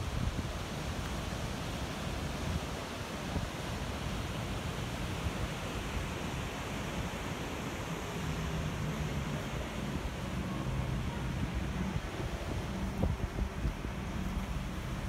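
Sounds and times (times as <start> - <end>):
wind buffeting microphone: 0.0 - 1.0, 8.9 - 15.0
ocean surf rushing: 0.0 - 15.0.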